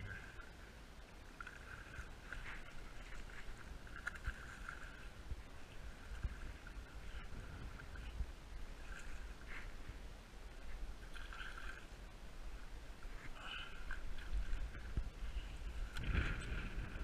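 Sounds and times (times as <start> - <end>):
wind rumbling on microphone: 1.7 - 17.0.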